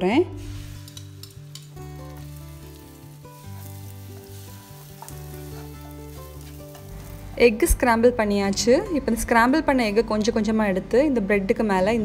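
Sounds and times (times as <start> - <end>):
soft background music: 0.0 - 12.0
eggs sizzling in frying pan: 0.3 - 7.7
spatula stirring in pan: 3.7 - 7.1.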